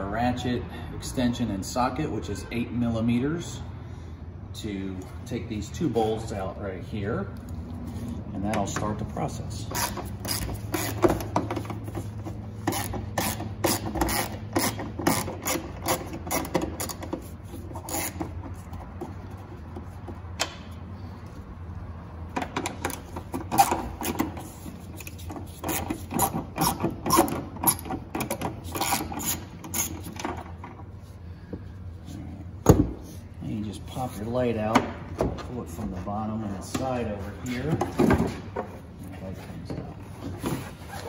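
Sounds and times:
hand ratchet clicking rapidly: 0:09.7 - 0:11.4, 0:12.6 - 0:17.1, 0:25.0 - 0:30.1.

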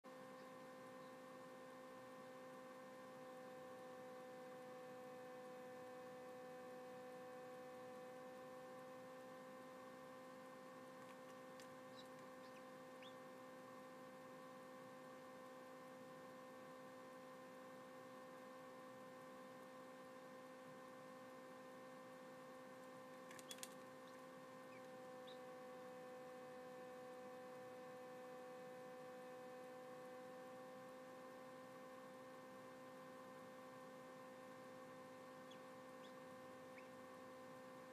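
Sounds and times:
incubator fan hum: 0:00.0 - 0:37.9
faint ticks and clicks: 0:22.8 - 0:24.2.

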